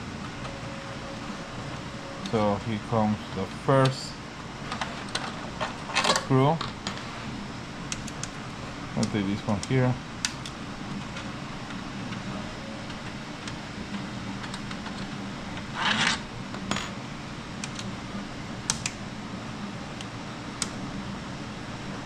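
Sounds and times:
steady low hum: 0:00.0 - 0:22.0
screwdriver scraping rustle: 0:14.4 - 0:16.2.

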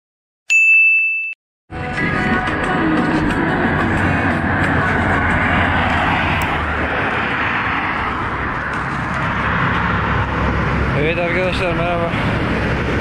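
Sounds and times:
road traffic rushing: 0:01.7 - 0:13.0.

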